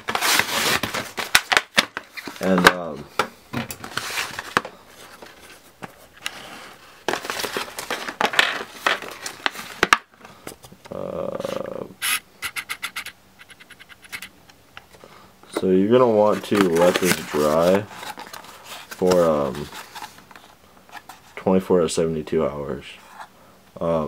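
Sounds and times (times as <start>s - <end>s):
cardboard and plastic packaging rustling: 0.0s - 11.8s, 14.9s - 21.5s.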